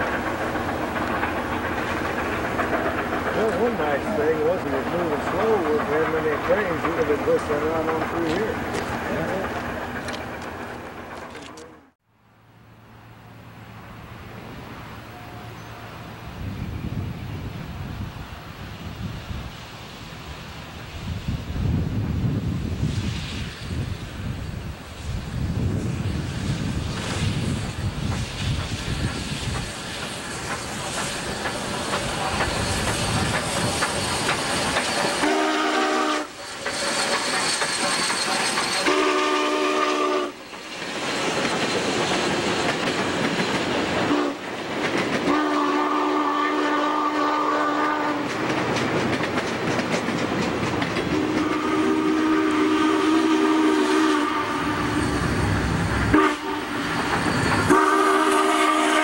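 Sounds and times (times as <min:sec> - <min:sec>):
steam train rumbling and clattering: 0:00.0 - 0:12.0, 0:13.4 - 0:59.0
steam whistle blasts: 0:35.2 - 0:36.4, 0:38.8 - 0:40.4, 0:44.1 - 0:44.4, 0:45.3 - 0:48.2, 0:51.2 - 0:55.2, 0:56.1 - 0:59.0.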